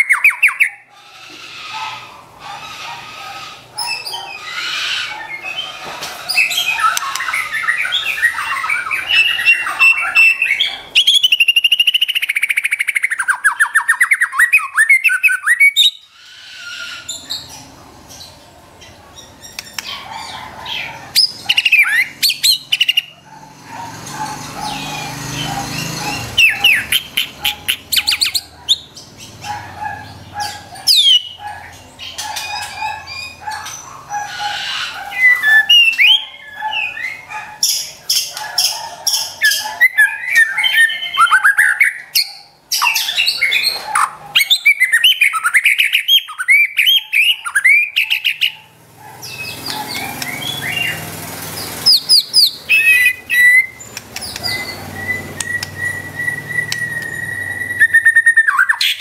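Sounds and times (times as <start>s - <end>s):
bird singing: 0.0s - 59.0s.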